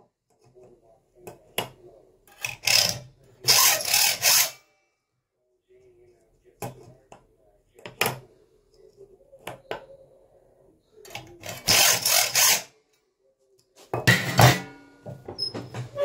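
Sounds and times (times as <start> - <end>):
hacksaw sawing metal: 2.4 - 4.6, 11.5 - 12.7.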